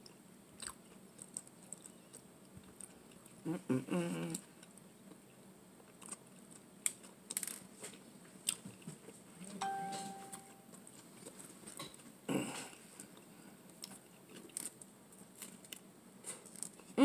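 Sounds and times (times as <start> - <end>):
short clear ding: 9.6 - 10.6.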